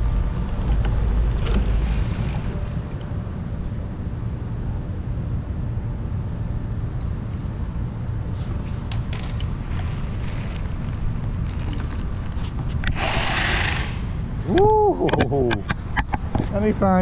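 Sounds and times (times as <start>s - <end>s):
wind rumble on microphone: 0.0s - 17.0s
bike clicking down concrete steps: 8.6s - 13.8s.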